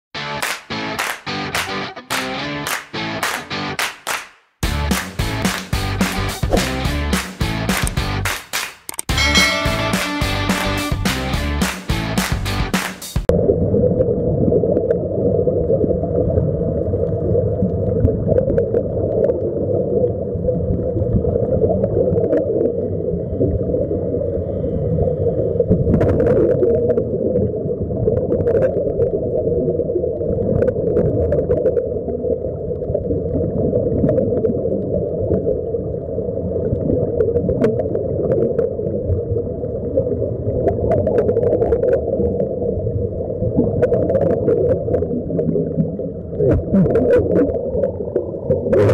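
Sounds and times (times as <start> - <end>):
underwater rumble and rushing water: 13.3 - 48.9.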